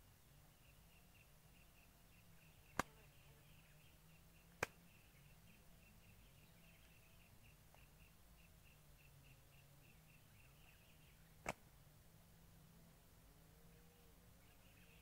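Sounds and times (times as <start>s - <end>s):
faint outdoor background: 0.0s - 15.0s.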